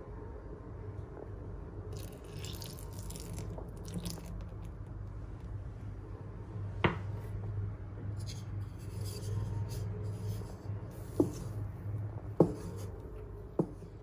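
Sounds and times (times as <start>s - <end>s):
milk splashing into batter: 2.0s - 4.7s.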